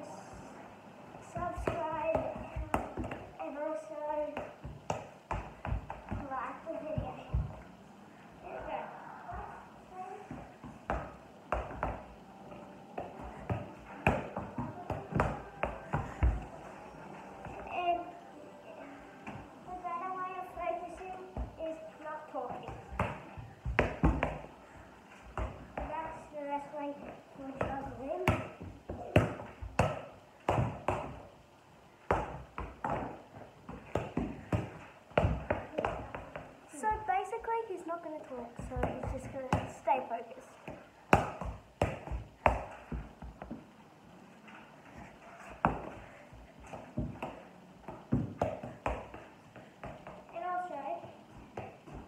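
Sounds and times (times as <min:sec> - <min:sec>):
ball taps and thuds on feet: 0:01.2 - 0:03.4, 0:04.2 - 0:07.7, 0:10.3 - 0:12.2, 0:13.0 - 0:16.5, 0:22.3 - 0:24.6, 0:25.2 - 0:26.2, 0:27.5 - 0:31.2, 0:32.1 - 0:37.5, 0:38.5 - 0:39.9, 0:40.7 - 0:43.7, 0:45.5 - 0:52.0.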